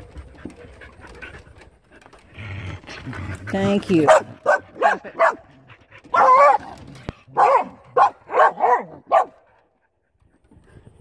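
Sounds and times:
dog barking and yipping: 0:03.9 - 0:09.5.

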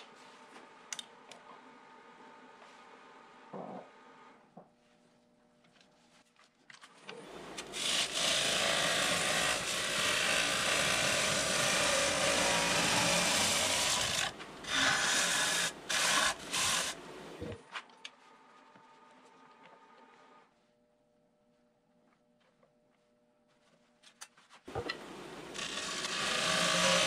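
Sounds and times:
lathe tool cutting wood: 0:07.6 - 0:17.0, 0:25.5 - 0:27.0.

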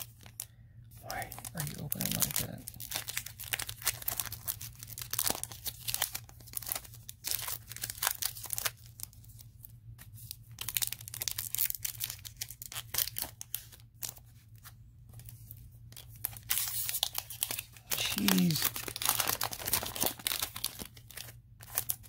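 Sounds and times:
foil wrapper tearing: 0:01.1 - 0:09.4, 0:10.2 - 0:14.3, 0:16.0 - 0:22.0.

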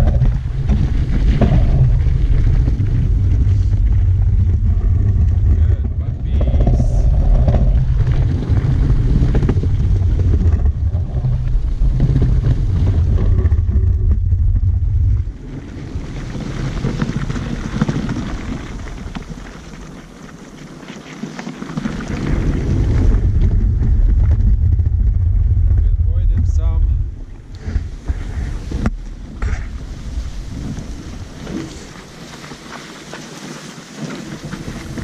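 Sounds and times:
wind buffeting microphone: 0:00.0 - 0:19.8, 0:21.8 - 0:32.8, 0:34.1 - 0:35.0
sled hissing over snow: 0:29.7 - 0:35.0.

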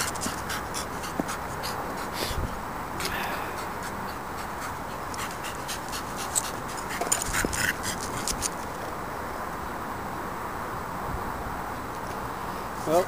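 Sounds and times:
scratchy clicks and scrapes on tarmac: 0:00.0 - 0:02.3, 0:03.8 - 0:09.0
steady background hiss: 0:00.0 - 0:13.0.

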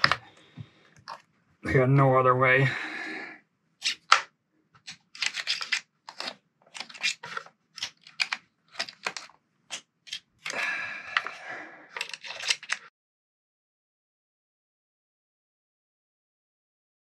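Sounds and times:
metal tools clicking on screws: 0:04.9 - 0:09.3, 0:12.0 - 0:12.8.

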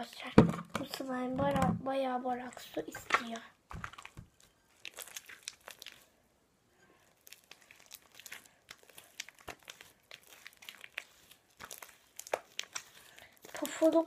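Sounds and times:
slime sticky crackles and pops: 0:03.0 - 0:06.1, 0:07.1 - 0:14.0.

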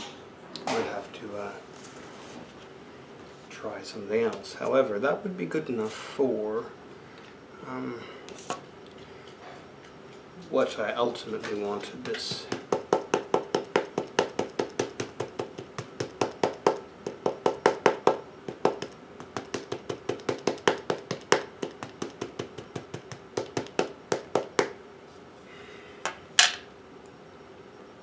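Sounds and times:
ink pad tapping on stamp: 0:12.0 - 0:24.8.

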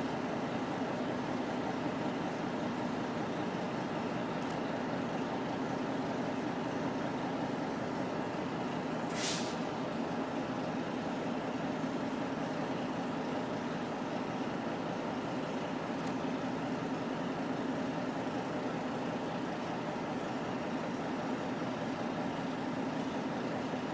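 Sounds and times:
diesel locomotives idling: 0:00.0 - 0:23.9
air brake hiss: 0:09.0 - 0:09.7.

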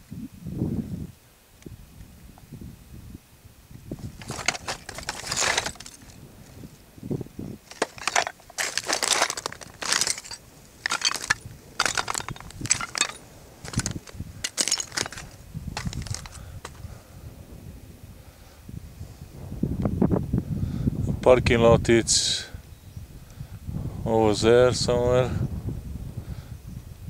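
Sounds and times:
footsteps crunching on shale: 0:04.0 - 0:06.2, 0:07.6 - 0:16.8.

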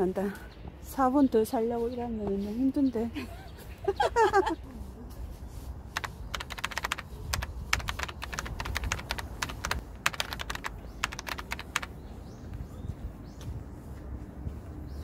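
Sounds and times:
keyboard typing: 0:06.0 - 0:12.0.

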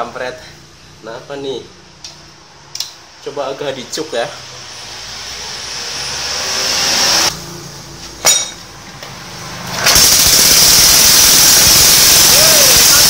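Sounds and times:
sharp click: 0:02.0 - 0:03.0
stationary engine running: 0:04.0 - 0:07.5, 0:09.7 - 0:13.0.

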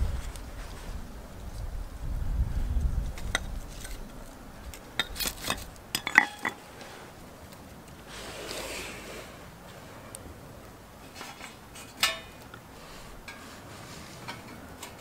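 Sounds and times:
soft hiss of shavings flaring: 0:06.6 - 0:11.7, 0:12.4 - 0:14.3.

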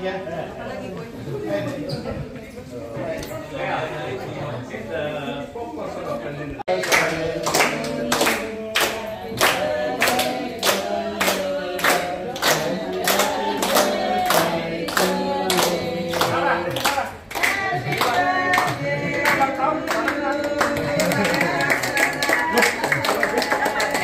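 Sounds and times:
people singing a celebration song: 0:06.5 - 0:24.0
people clapping in time: 0:06.7 - 0:24.0.

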